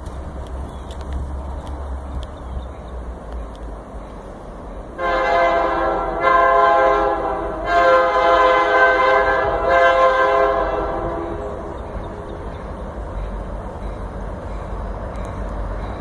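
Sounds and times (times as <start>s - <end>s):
locomotive air horn blasts: 5.0s - 11.7s.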